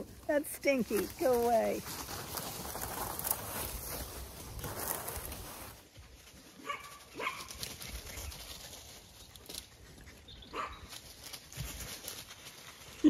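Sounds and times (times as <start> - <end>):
rustling in dry leaves: 0.0 - 13.0.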